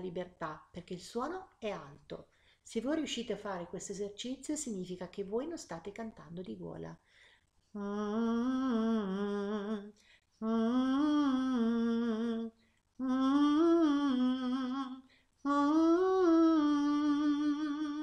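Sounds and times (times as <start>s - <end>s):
short breaths: 2.3s - 2.7s, 7.0s - 7.6s
person humming a nasal note: 7.8s - 18.0s.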